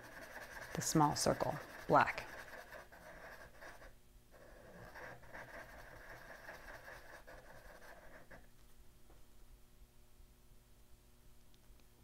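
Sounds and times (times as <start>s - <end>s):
marker scribbling on paper: 0.0s - 8.4s.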